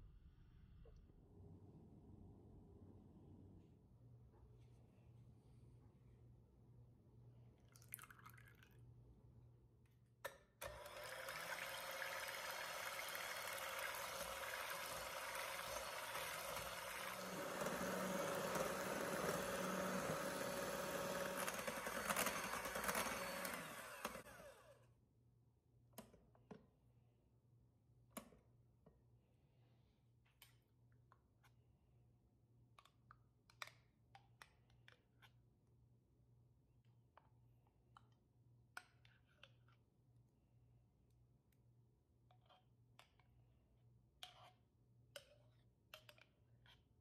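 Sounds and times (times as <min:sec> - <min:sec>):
electric hand mixer whipping cream: 0:10.6 - 0:24.8.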